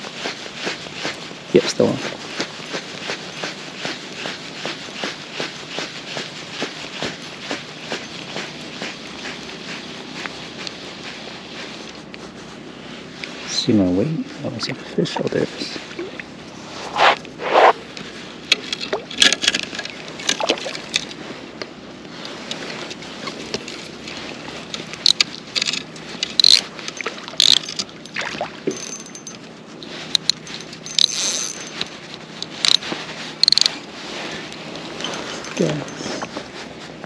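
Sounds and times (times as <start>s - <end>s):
fishing gear knocking and clicking: 25.0s - 29.4s, 30.2s - 31.8s, 33.4s - 33.7s.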